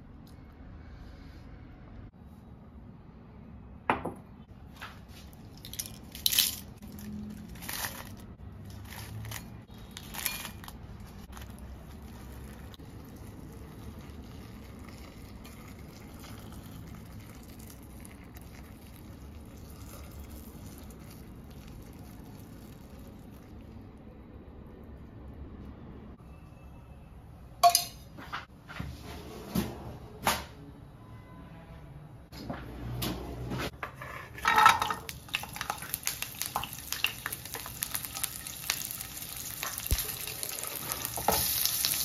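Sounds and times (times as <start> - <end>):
kitchenware clinking: 27.6 - 28.2, 33.8 - 35.7.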